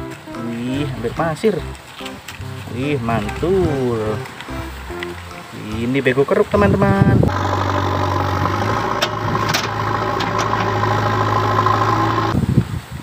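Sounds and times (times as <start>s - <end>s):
diesel engine running: 6.8s - 12.4s.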